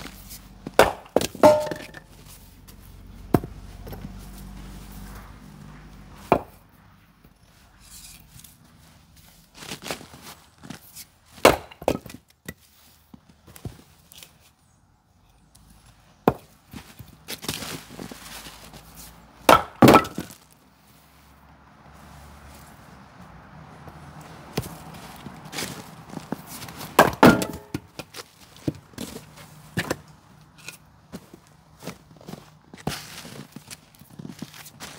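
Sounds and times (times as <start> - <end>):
maul splitting firewood: 0.0 - 5.0, 6.2 - 6.6, 9.6 - 14.6, 15.6 - 20.6, 24.3 - 34.9
wooden knocks of logs handled: 0.6 - 2.1, 3.3 - 4.1, 6.3 - 6.6, 11.4 - 12.6, 16.2 - 17.6, 19.4 - 20.4, 26.2 - 31.4.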